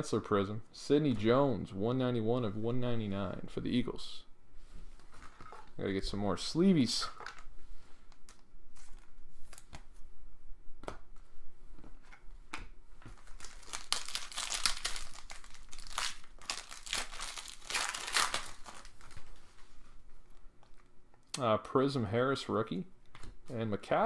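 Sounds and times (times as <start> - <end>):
cards being handled: 7.0 - 10.0, 10.8 - 19.6
wrapper crinkling and tearing: 13.2 - 19.3.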